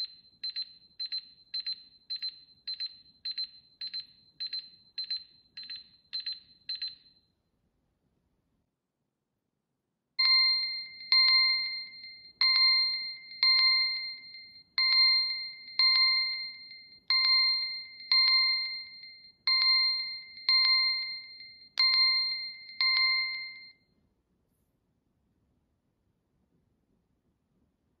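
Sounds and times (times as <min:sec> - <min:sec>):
bell-like ding of phone alert: 0:10.2 - 0:23.7.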